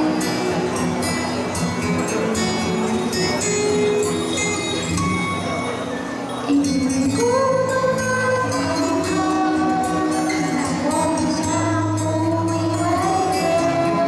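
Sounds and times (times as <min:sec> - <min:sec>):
pop backing track: 0:06.4 - 0:14.0
woman singing slow melody: 0:06.4 - 0:14.0.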